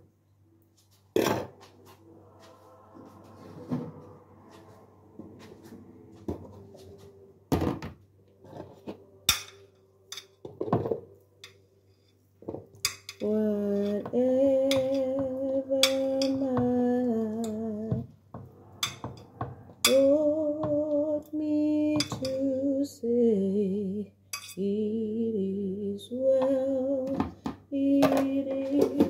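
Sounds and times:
metal spoon clinking on glass dish: 24.4 - 24.6.

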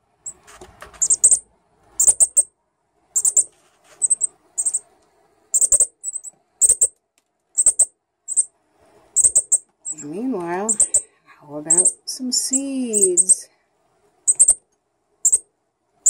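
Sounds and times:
fledgling bird chip calls: 1.0 - 1.4, 2.0 - 2.5, 3.2 - 4.9, 5.5 - 6.9, 7.6 - 8.5, 9.2 - 10.1, 10.7 - 11.1, 11.7 - 13.4, 14.3 - 14.6, 15.2 - 15.4.

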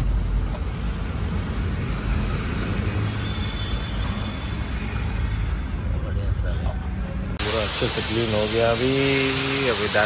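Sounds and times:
machine rumble with hiss: 7.4 - 10.0.

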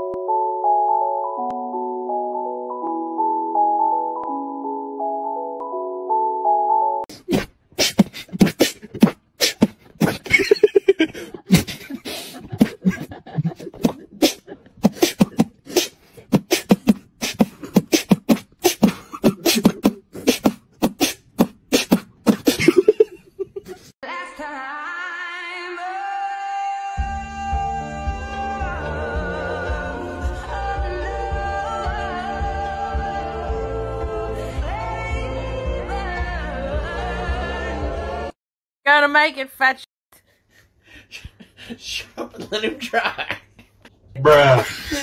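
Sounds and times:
beatboxing: 7.1 - 10.6, 11.5 - 23.0.

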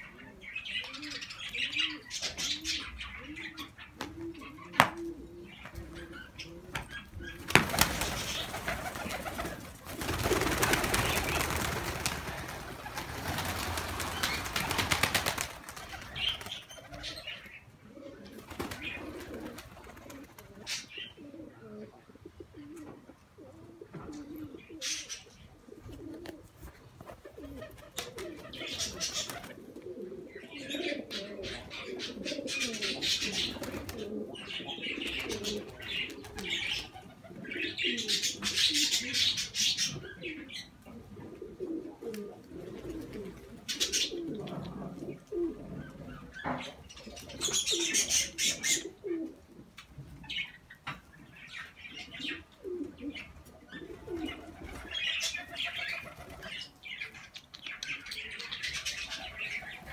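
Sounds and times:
pigeons cooing: 0.0 - 59.9
pigeons flapping wings: 6.8 - 17.0, 18.4 - 20.6, 27.1 - 29.6.

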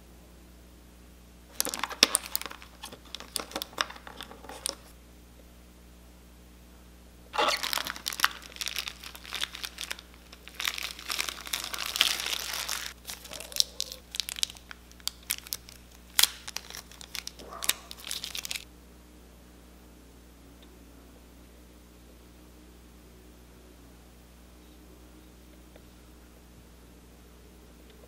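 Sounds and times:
plastic wrap crinkling: 1.5 - 4.9, 7.4 - 18.7.

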